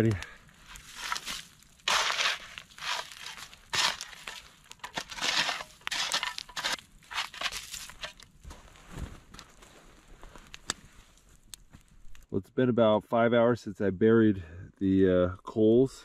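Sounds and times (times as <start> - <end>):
shovel scraping sand and gravel: 0.0 - 8.2.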